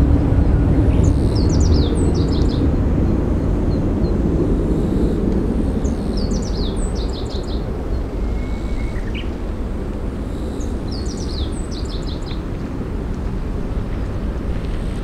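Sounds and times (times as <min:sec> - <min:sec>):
jet engines rumbling: 0:00.0 - 0:15.0
bird chirping: 0:00.9 - 0:02.6
rising bird whistle: 0:08.2 - 0:09.3.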